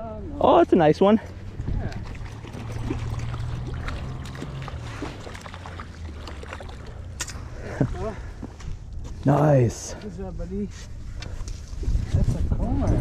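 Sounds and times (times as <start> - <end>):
fish splashing at water surface: 1.6 - 7.5.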